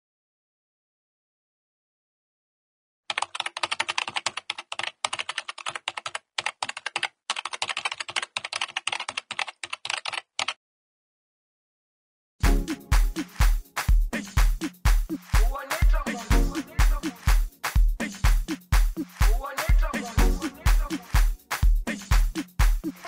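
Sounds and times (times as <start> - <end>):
rapid keyboard typing: 3.1 - 10.6
dance music with heavy kick drum: 12.4 - 23.0.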